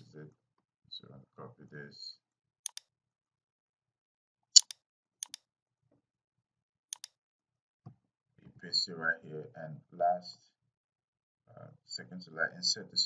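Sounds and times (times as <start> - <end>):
computer mouse double clicks: 4.6 - 5.4, 6.9 - 7.1.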